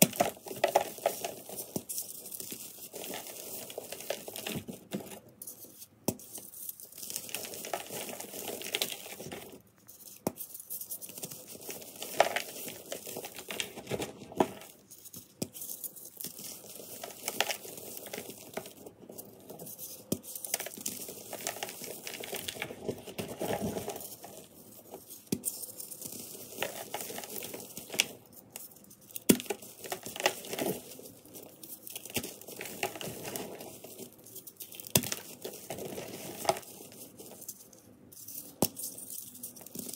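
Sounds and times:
hands crushing crunchy chalk: 0:00.0 - 0:39.9.

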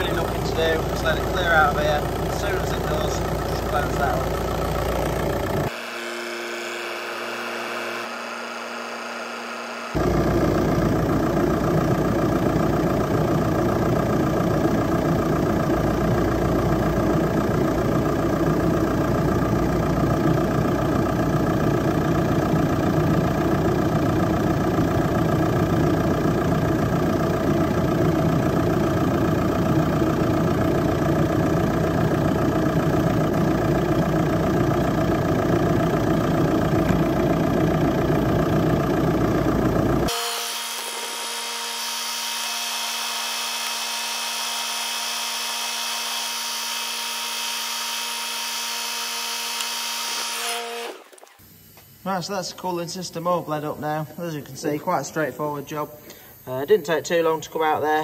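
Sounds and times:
diesel engine idling: 0:00.0 - 0:05.7, 0:10.0 - 0:40.1.

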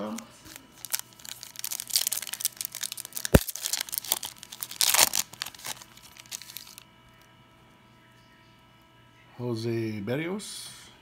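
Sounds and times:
foil wrapper tearing and crinkling: 0:00.0 - 0:06.8.

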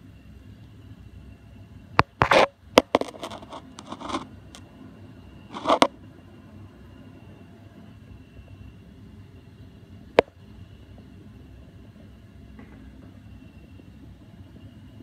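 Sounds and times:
scraping rustles: 0:02.2 - 0:04.3, 0:05.5 - 0:05.9.

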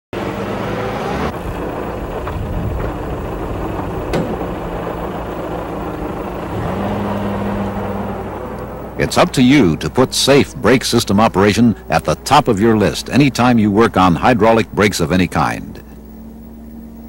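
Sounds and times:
jeep engine running: 0:00.2 - 0:17.0.

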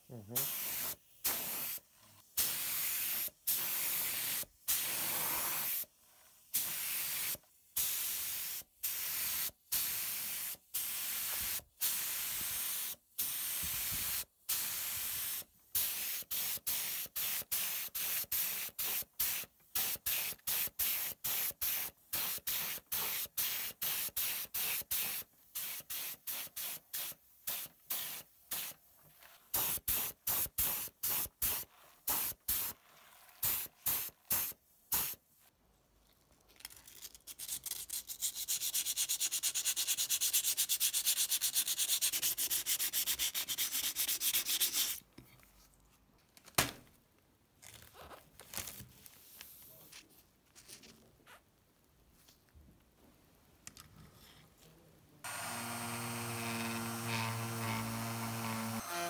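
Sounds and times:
paint spray gun hissing: 0:00.4 - 0:01.8
sandpaper rubbing on metal: 0:37.7 - 0:45.0.

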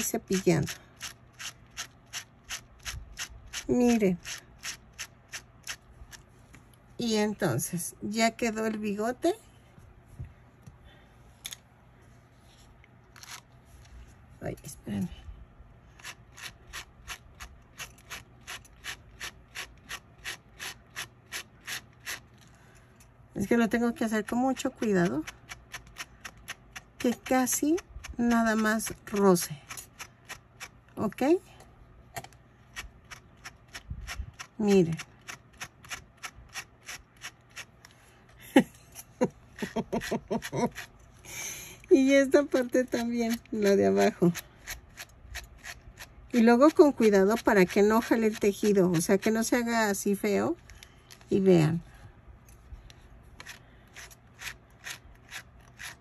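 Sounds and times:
brush scratching through yarn: 0:00.0 - 0:05.8, 0:15.9 - 0:22.4, 0:32.7 - 0:37.8, 0:53.4 - 0:56.0.

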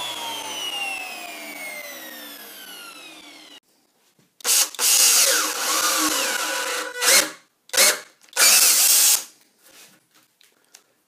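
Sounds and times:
power drill boring into wood: 0:00.0 - 0:03.6, 0:04.4 - 0:09.3.

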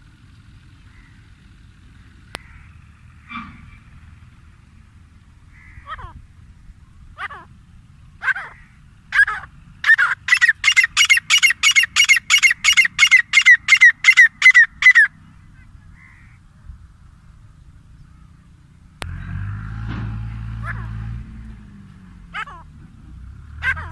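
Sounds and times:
low steady background noise: 0:00.0 - 0:23.9
francolin calling: 0:06.9 - 0:16.5.

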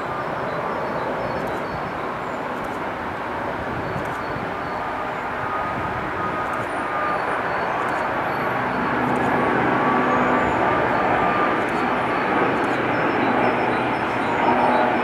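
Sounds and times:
jet airliner rumble with whine: 0:00.0 - 0:15.0.

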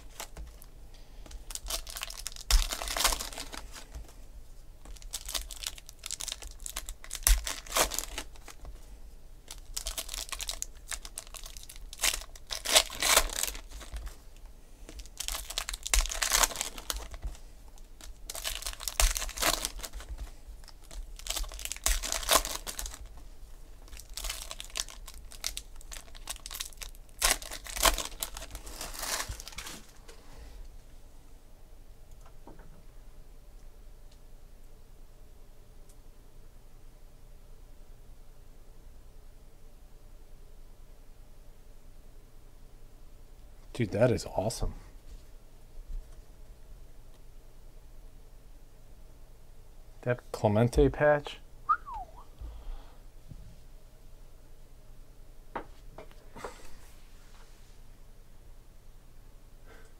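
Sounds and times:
foil packs tearing and crinkling: 0:01.4 - 0:03.9, 0:04.9 - 0:08.6, 0:09.5 - 0:14.2, 0:14.9 - 0:23.2, 0:23.8 - 0:30.0.

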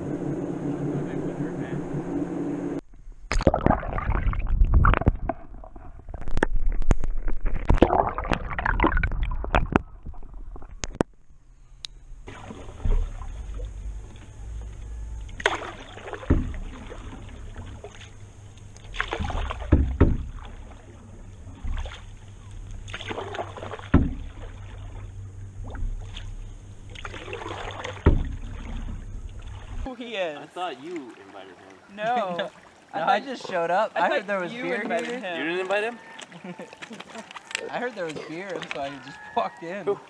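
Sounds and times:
paddle splashing in water: 0:12.2 - 0:14.3, 0:15.2 - 0:40.0.

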